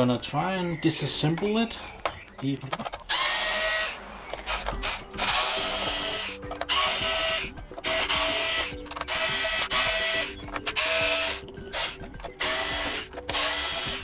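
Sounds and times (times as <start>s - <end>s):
electric screwdriver whirring: 3.1s - 14.0s.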